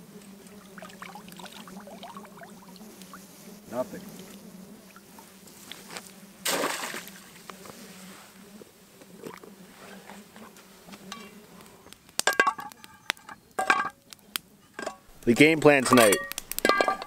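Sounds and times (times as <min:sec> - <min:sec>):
metal cookware clanking: 0:13.6 - 0:14.0, 0:14.8 - 0:15.1, 0:15.8 - 0:17.0.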